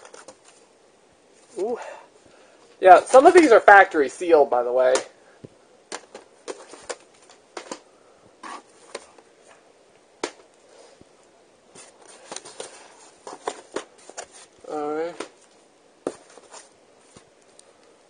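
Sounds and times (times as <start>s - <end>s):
plastic tape cases clacking: 5.9s - 7.8s.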